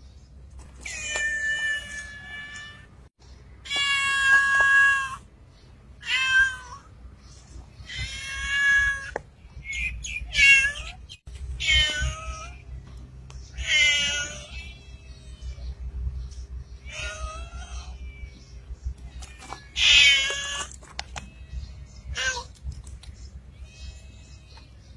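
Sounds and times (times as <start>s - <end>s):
cat meowing: 6.0s - 6.9s, 10.3s - 12.6s, 13.6s - 15.7s, 16.8s - 18.4s, 19.0s - 22.5s.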